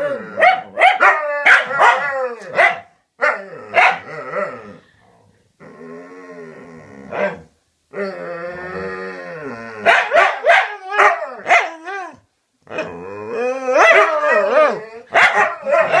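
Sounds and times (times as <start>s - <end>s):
dogs howling: 0.0s - 2.6s, 9.4s - 12.2s, 12.8s - 16.0s
dogs barking sharply: 0.4s - 2.9s, 9.9s - 11.7s, 15.1s - 16.0s.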